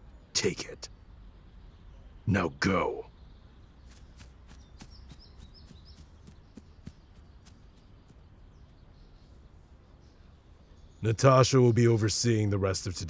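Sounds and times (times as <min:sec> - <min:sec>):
high bird chirps: 0:00.2 - 0:11.4
light quick footsteps: 0:03.8 - 0:08.8.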